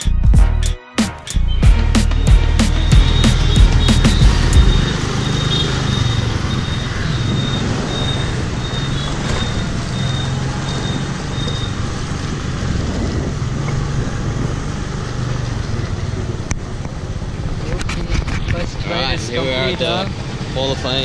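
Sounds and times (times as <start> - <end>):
road traffic: 1.3 - 21.0
high repeating beep: 1.4 - 11.7
engine running: 1.7 - 21.0.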